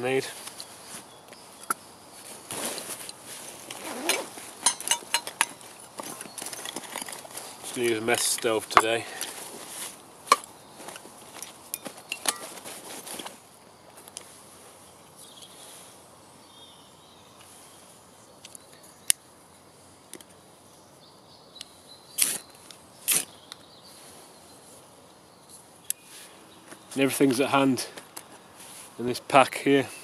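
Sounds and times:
camping gear rustling and knocking: 0.0s - 14.4s.

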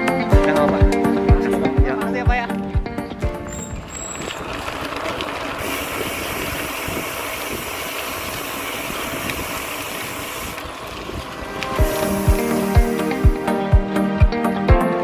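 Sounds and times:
wind on microphone: 2.6s - 13.4s.

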